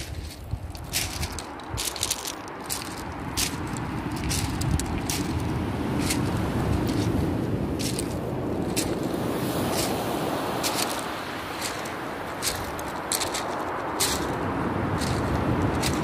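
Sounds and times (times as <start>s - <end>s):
footsteps on pebbles: 0.0s - 16.0s.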